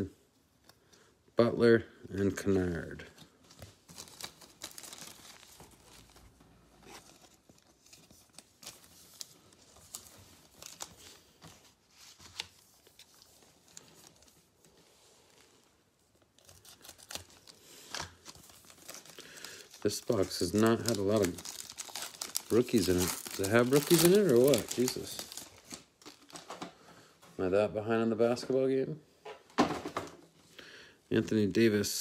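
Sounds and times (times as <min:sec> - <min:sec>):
foil pack crinkling and tearing: 0:03.8 - 0:11.4, 0:16.3 - 0:26.7.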